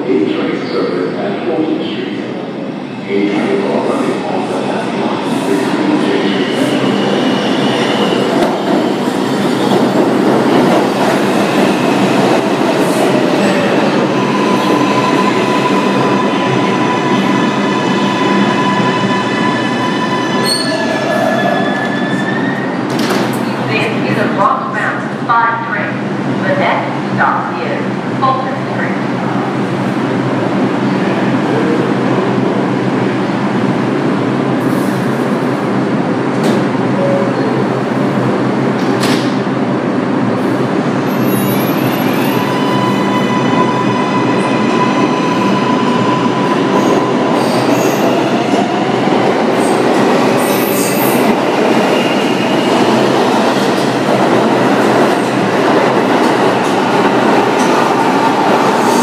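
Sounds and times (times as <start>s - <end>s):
subway train rumble: 0.0s - 59.0s.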